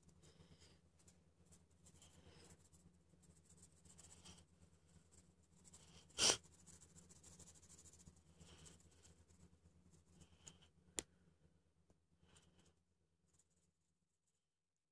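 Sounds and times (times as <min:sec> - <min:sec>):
low steady hum: 0:00.0 - 0:14.1
drawing tool scratching paper: 0:01.8 - 0:09.4.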